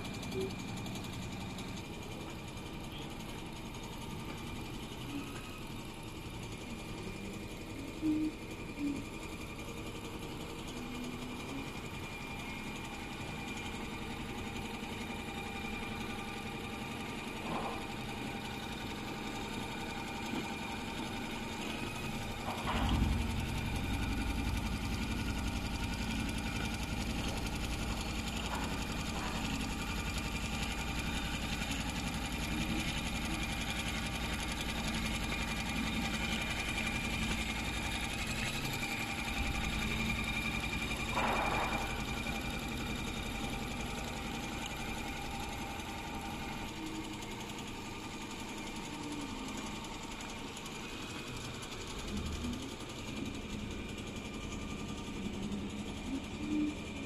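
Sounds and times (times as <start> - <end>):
sewing machine humming: 0.0 - 57.0.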